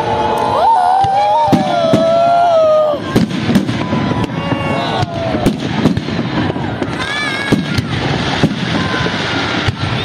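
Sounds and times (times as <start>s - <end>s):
rumble and crackle of fireworks: 0.0s - 10.0s
firework shells bursting: 3.0s - 10.0s.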